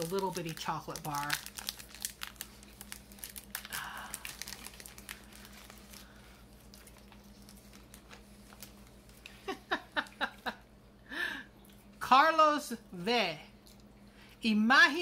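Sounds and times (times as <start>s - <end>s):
wrapper crinkling: 0.0s - 9.5s.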